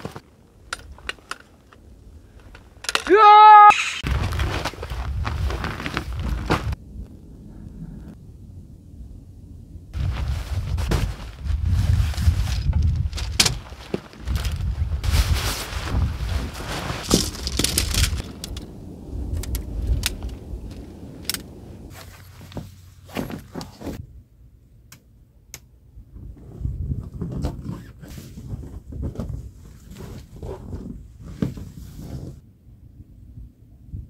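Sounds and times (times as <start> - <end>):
tent fabric rustling and flapping: 0.0 - 1.6, 4.0 - 6.8, 10.0 - 18.5, 21.7 - 24.0, 26.2 - 32.4
tent poles clicking and knocking: 0.0 - 5.0, 12.3 - 14.7, 16.7 - 24.0
wind buffeting microphone: 4.0 - 23.0, 26.0 - 31.4.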